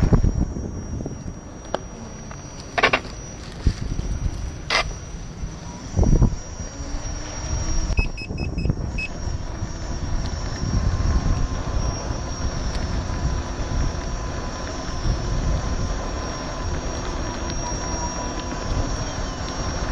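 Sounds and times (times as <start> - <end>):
tyre and road rumble: 0.0 - 19.9
wind noise: 0.0 - 19.9
short high beeps: 7.5 - 9.2.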